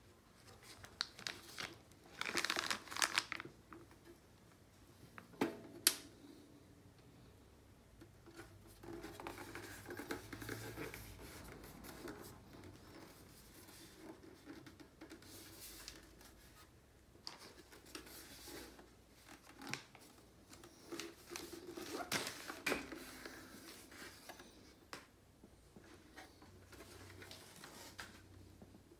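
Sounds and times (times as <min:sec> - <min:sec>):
plastic wrapping crinkling: 0:00.4 - 0:03.8.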